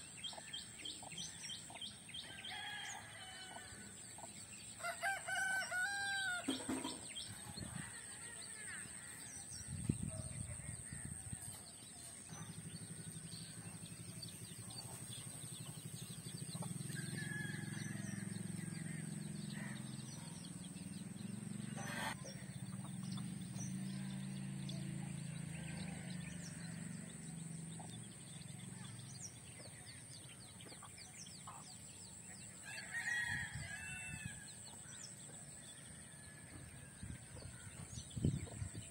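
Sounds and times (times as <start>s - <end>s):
rooster crowing: 4.8s - 6.6s, 17.0s - 19.1s.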